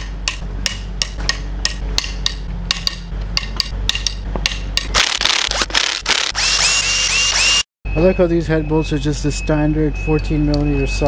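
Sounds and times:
impact wrench hammering: 0.0 - 6.8.

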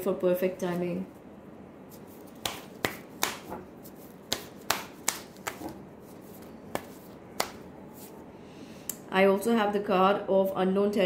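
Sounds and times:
cards being shuffled: 1.9 - 8.2.

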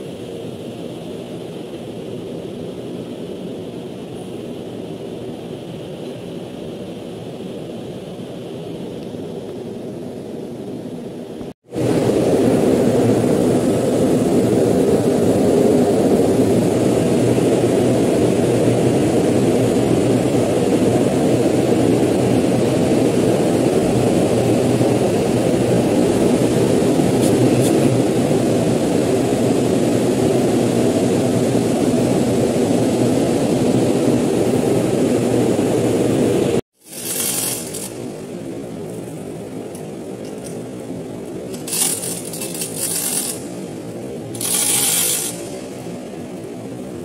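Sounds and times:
heavy machinery running: 34.2 - 38.9, 41.4 - 47.0.

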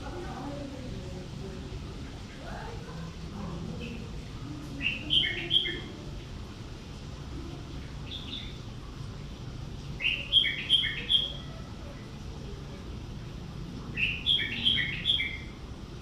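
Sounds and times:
small bird chirping: 10.0 - 11.6, 14.0 - 15.6.

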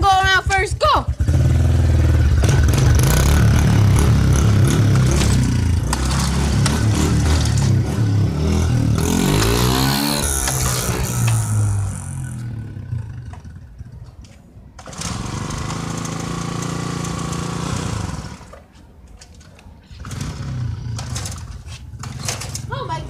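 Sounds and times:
dirt bike engine running: 0.0 - 13.4.

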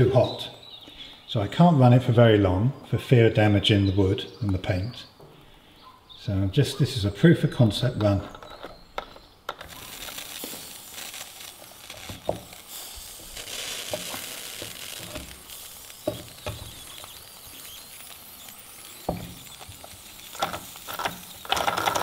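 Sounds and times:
steam boiler sizzling hiss: 5.2 - 22.0.

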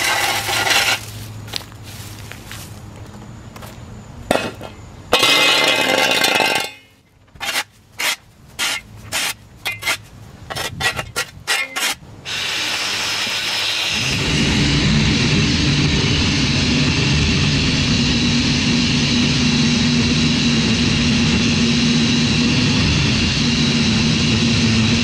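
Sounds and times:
shovel scraping concrete: 0.0 - 2.1, 4.3 - 14.2
small two-stroke engine running: 12.3 - 25.0.

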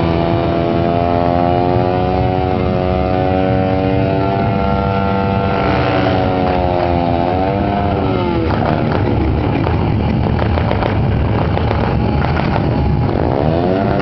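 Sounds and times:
motorcycle engine revving: 0.0 - 14.0.

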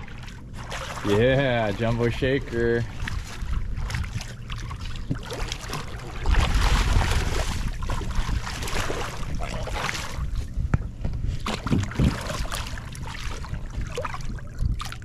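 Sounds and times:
fish thrashing in water: 0.0 - 10.4, 11.3 - 15.0
wind rumbling on microphone: 0.0 - 15.0.

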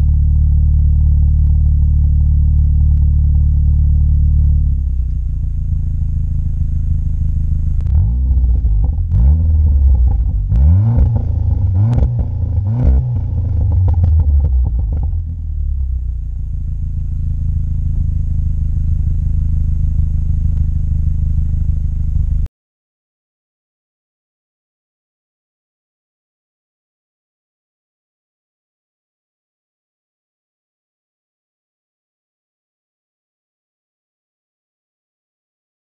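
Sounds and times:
car engine idling and revving: 0.0 - 22.5.

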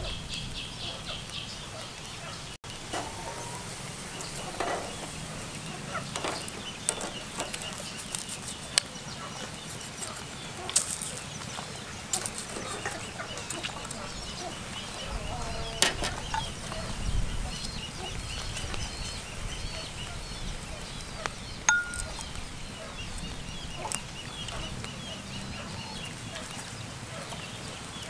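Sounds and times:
cleaver clinking on grill rack: 2.9 - 8.9, 21.7 - 22.4.

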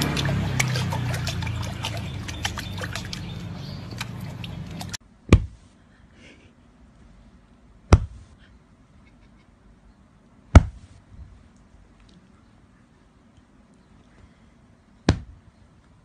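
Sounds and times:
puppy lapping water: 0.0 - 5.0
water splashing and dripping: 0.0 - 5.0.

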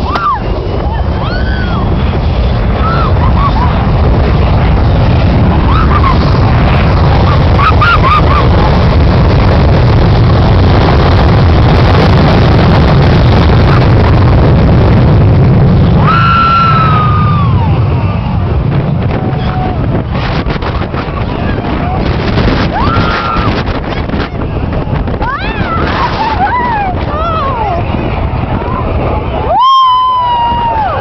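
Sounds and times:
jet engines roaring: 0.0 - 31.0
wind buffeting microphone: 0.0 - 31.0
people yelling: 19.1 - 19.9, 22.6 - 23.6, 29.3 - 31.0.

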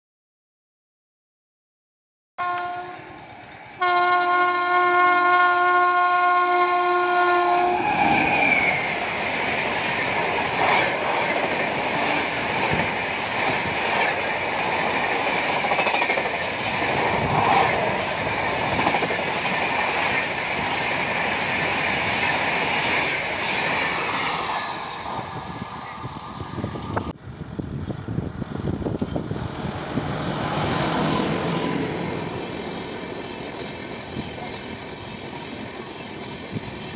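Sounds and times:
locomotive horn: 2.4 - 3.1, 3.8 - 7.9
train approaching: 2.4 - 36.9
train rumble and clickety-clack: 2.4 - 36.9.

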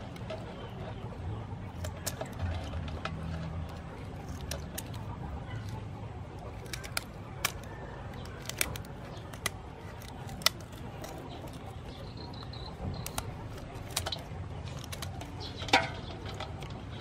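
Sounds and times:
scissors snipping shell: 6.5 - 15.5.

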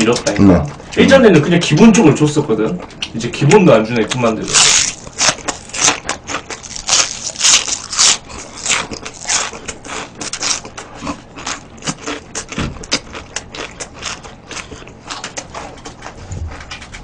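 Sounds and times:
person chewing and lip-smacking: 4.0 - 17.0.

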